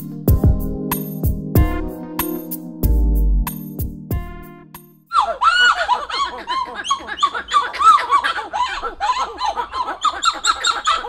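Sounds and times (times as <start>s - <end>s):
monkeys calling in duet: 5.1s - 11.0s.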